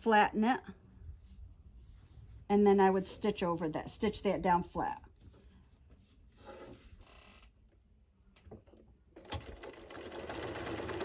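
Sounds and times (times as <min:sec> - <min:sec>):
sewing machine running: 0:09.2 - 0:11.0.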